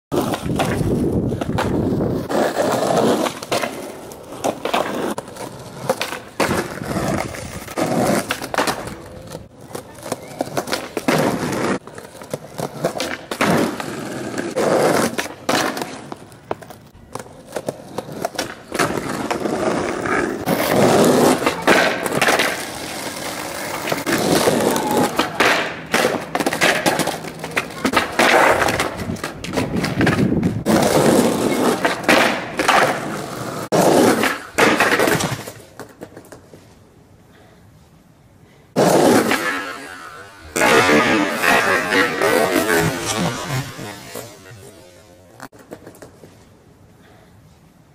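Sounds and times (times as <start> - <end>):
skateboard clacking down: 0.1 - 36.4, 38.8 - 44.6
skateboard tail popping: 0.1 - 36.6
skateboard wheels rolling: 0.1 - 47.9.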